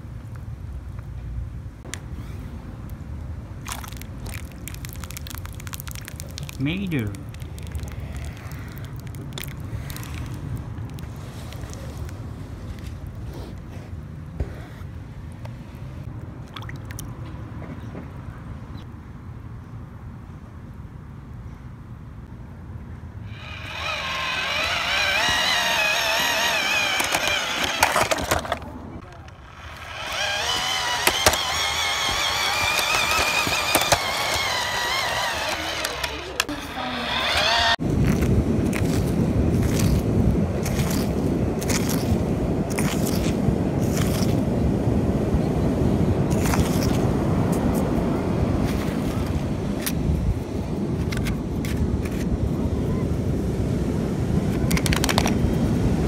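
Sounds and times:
hand scraping sand and pebbles: 3.6s - 14.9s, 23.3s - 44.5s, 46.2s - 48.0s
wind buffeting microphone: 37.1s - 56.0s.

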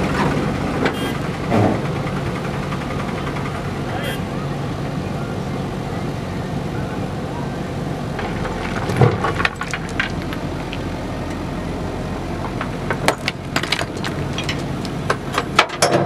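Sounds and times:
diesel engine running: 0.0s - 16.0s
stones knocking and clattering: 8.2s - 11.4s, 12.5s - 15.8s.

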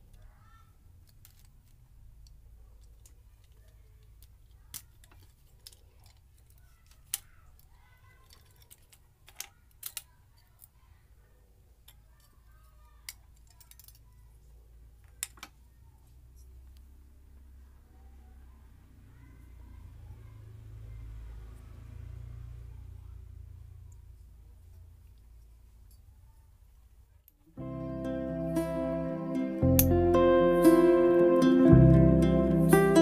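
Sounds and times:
toy car clicks and taps: 1.0s - 10.8s, 13.0s - 14.0s
low steady hum: 10.4s - 33.0s.

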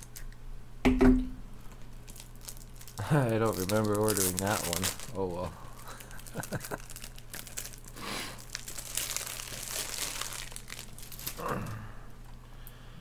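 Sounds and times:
plastic packaging crinkling: 1.6s - 11.6s.

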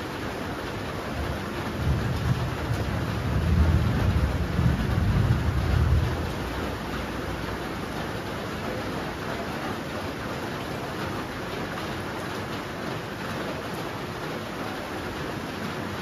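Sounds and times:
steady rain falling: 0.0s - 16.0s
thunder rumbling: 1.0s - 7.8s.

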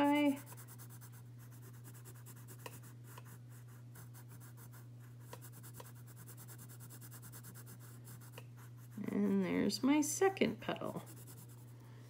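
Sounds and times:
pencil shading on paper: 0.0s - 9.2s, 11.0s - 11.7s
steady low hum: 0.0s - 12.0s
pencil ticks: 0.4s - 3.4s, 5.2s - 7.7s.

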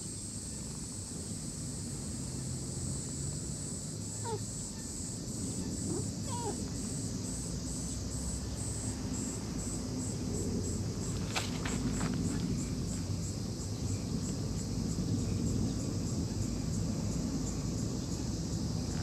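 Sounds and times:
insects shrilling: 0.1s - 8.1s
faint gliding animal calls: 4.0s - 7.4s.

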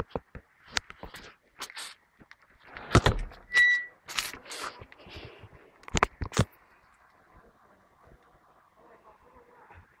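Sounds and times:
short high squeak: 3.5s - 4.0s.

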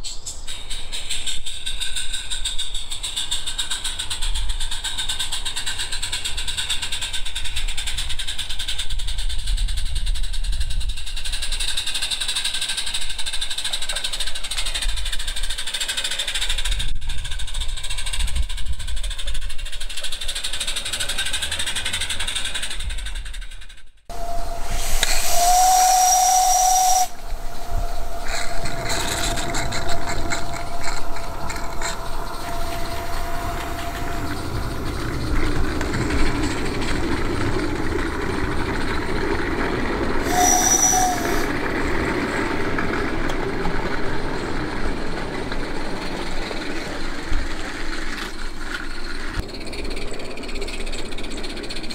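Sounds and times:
steam engine hissing: 0.0s - 23.4s, 24.1s - 51.9s
steam whistle: 24.1s - 37.0s, 40.2s - 41.7s.

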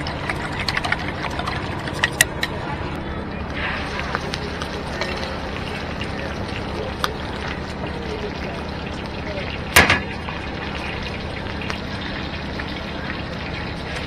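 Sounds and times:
eggs sizzling in oil: 3.5s - 14.0s
utensil clanking against pan: 9.8s - 10.2s.

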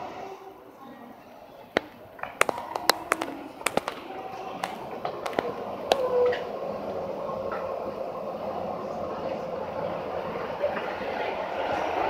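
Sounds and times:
footsteps: 1.8s - 6.3s.

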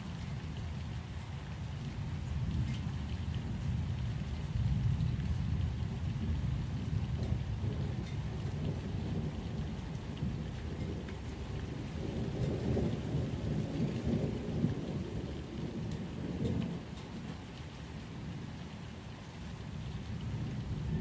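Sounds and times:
steady rain: 0.0s - 21.0s
rumble of thunder: 2.1s - 18.6s, 19.5s - 21.0s.

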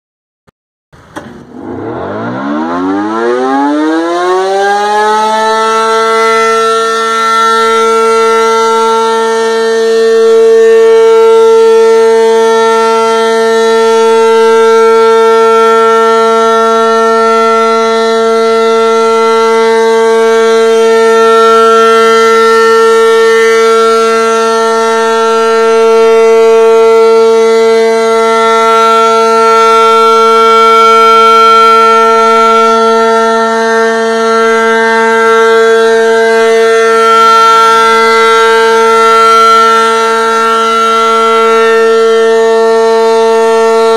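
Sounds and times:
rotating warning siren wailing: 1.2s - 43.9s.

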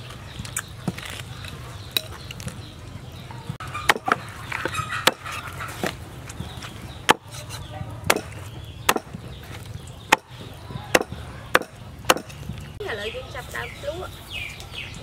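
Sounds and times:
cleaver chopping on wooden board: 3.8s - 4.3s, 5.0s - 6.0s, 7.1s - 9.4s, 10.1s - 12.4s.

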